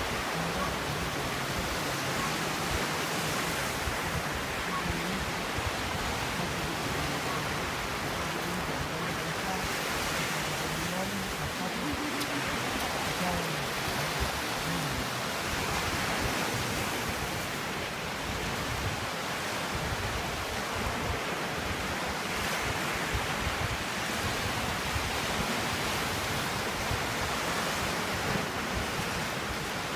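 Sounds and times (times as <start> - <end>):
small waves washing on rocks: 0.0 - 29.9.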